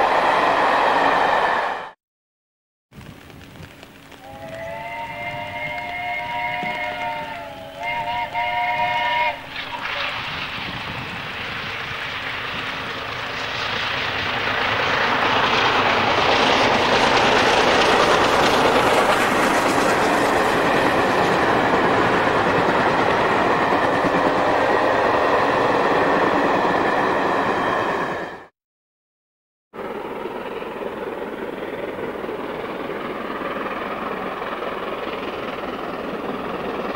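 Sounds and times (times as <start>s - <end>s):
train passing at speed: 0.0s - 2.0s, 4.2s - 28.5s, 29.8s - 36.9s
steam locomotive whistle chord: 4.2s - 10.1s.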